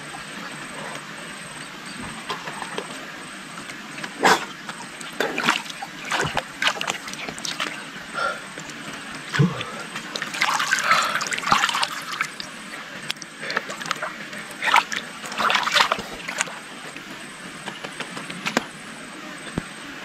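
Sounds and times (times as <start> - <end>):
pond water splashing and sloshing: 2.1 - 18.8
water dripping and trickling: 4.7 - 16.6.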